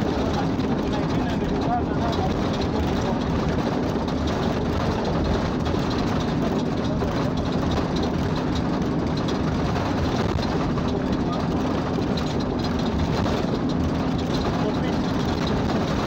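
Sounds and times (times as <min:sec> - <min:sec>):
vehicle engine and road noise: 0:00.0 - 0:16.0.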